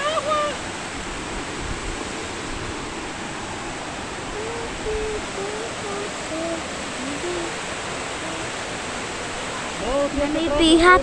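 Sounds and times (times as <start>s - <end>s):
water rushing over rapids: 0.0s - 11.0s
person humming: 4.3s - 8.9s.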